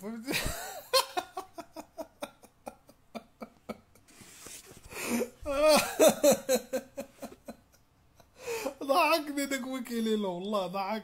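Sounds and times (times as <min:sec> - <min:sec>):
man laughing heartily: 0:00.3 - 0:04.1, 0:05.0 - 0:08.7
gasping in-breath: 0:04.8 - 0:05.4, 0:08.4 - 0:08.8.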